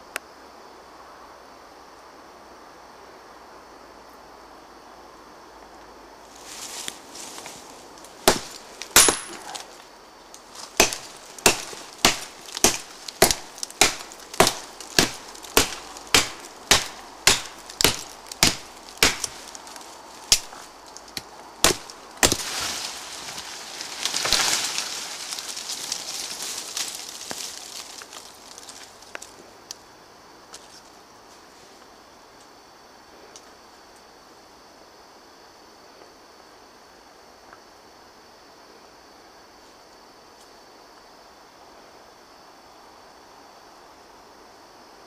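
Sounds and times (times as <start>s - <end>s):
tree crackling and falling: 6.3s - 29.8s
machete chopping wood: 8.2s - 9.7s, 10.6s - 19.6s, 20.3s - 20.6s, 21.2s - 22.7s.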